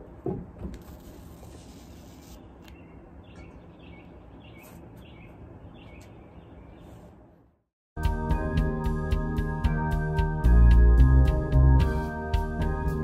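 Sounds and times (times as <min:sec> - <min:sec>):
outdoor background noise: 0:00.0 - 0:07.7
bird chirping: 0:02.4 - 0:07.1.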